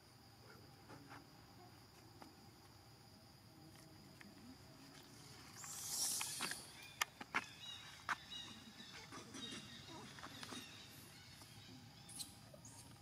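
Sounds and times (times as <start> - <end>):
insects calling: 0.0 - 13.0.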